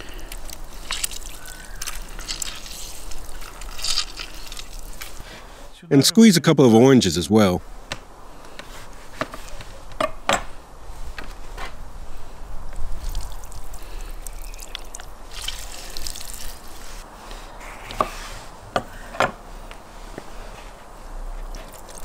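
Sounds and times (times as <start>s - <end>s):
juice trickling and dripping: 0.0s - 5.4s, 12.8s - 17.0s, 21.4s - 22.0s.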